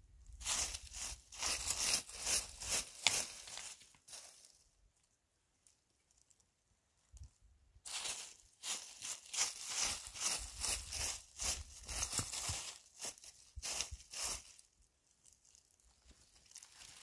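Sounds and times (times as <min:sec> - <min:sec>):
rough crunching and rustling strokes: 0:00.3 - 0:04.6, 0:07.8 - 0:17.0.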